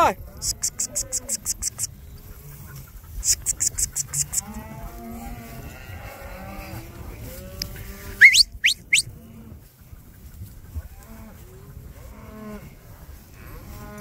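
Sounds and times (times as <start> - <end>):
cattle mooing and bawling: 0.3 - 1.8
sharp rising whistles: 8.2 - 9.1.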